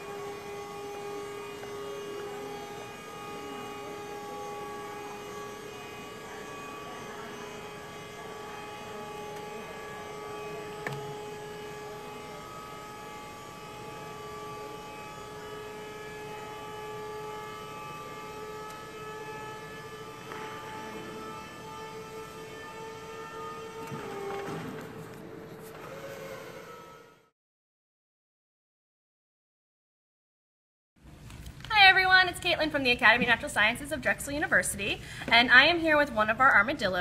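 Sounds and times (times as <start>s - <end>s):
lift motor humming: 0.0s - 27.3s.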